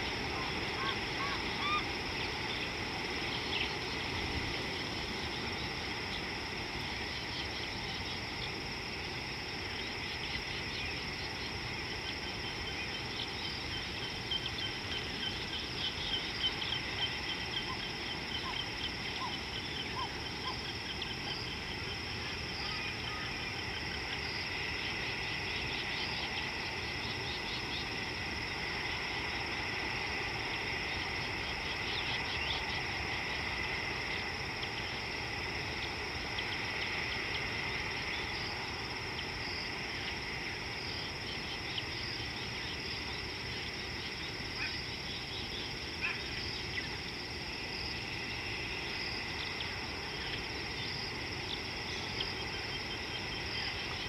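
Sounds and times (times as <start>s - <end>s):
insects droning: 0.0s - 54.0s.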